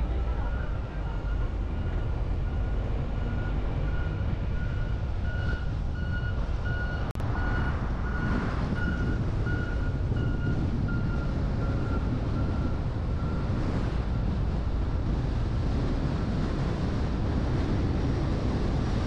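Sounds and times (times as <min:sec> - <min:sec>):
wind and road noise rumble: 0:00.0 - 0:19.0
reversing alarm beeping: 0:00.4 - 0:13.4.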